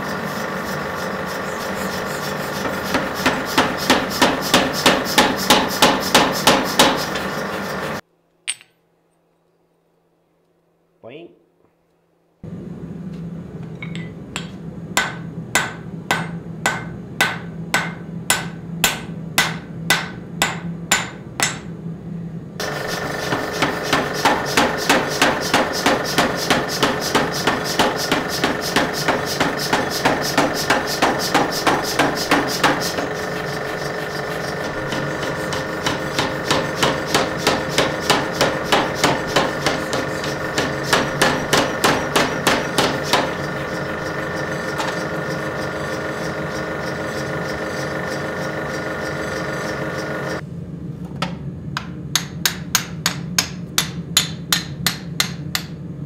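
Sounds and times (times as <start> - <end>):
power hammer pounding steel: 0.0 - 8.0, 14.4 - 21.7, 22.6 - 50.4, 51.8 - 55.8
hammer striking steel on anvil: 2.5 - 7.3, 8.5 - 8.8, 13.8 - 21.7, 22.7 - 48.0, 51.8 - 55.8.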